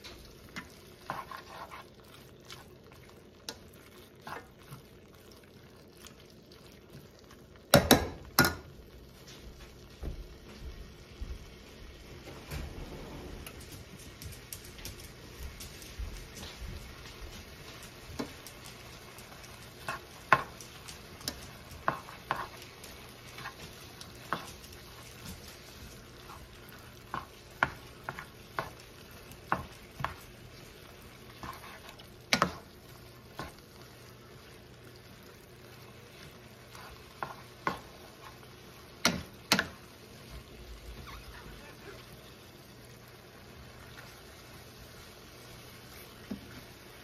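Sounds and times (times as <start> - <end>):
spoon knocking and scraping a pan: 0.0 - 2.7, 7.7 - 9.4, 17.6 - 33.9, 36.2 - 42.0, 45.8 - 46.8
meat and onions sizzling in a pan: 0.0 - 47.0.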